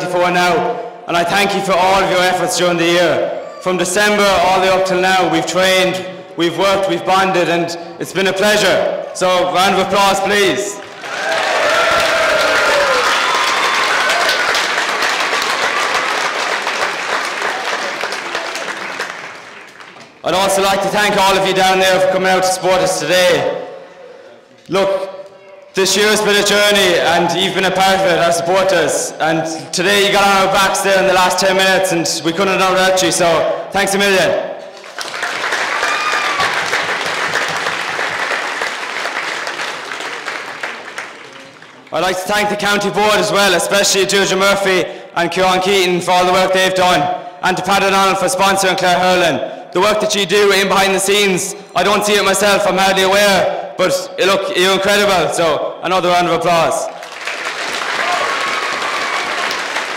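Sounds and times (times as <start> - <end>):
crowd applauding: 10.8 - 20.2, 34.7 - 42.0, 56.9 - 59.9.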